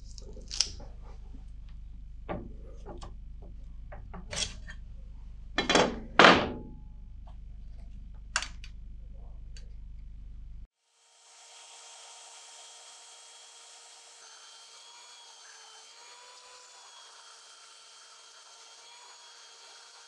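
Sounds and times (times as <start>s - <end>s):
loud thunks: 2.2s - 4.4s, 5.6s - 6.8s.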